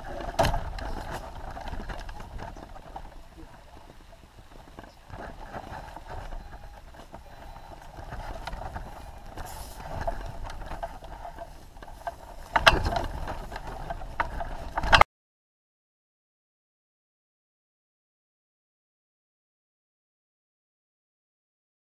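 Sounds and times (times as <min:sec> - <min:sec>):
glider frame rattling: 0:00.0 - 0:15.0
wind rumble on camera: 0:00.0 - 0:15.0.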